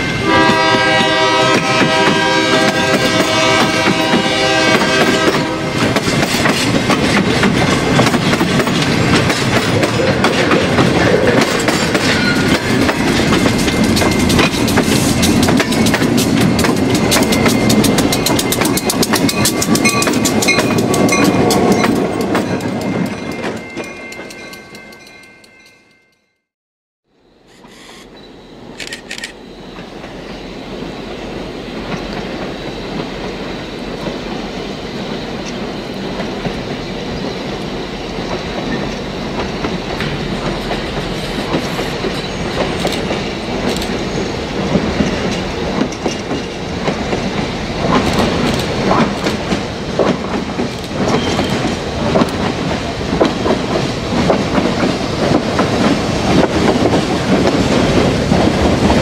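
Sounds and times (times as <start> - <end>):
diesel locomotive engine: 0.0 - 25.7, 27.3 - 59.0
train wheels clattering over joints: 0.5 - 25.6, 38.2 - 59.0.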